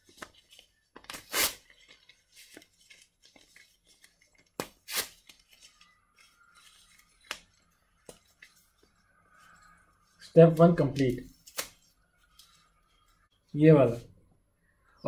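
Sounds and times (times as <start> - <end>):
paper handling: 0.0 - 9.5
paper wrapping tearing: 1.0 - 2.6, 4.6 - 5.5.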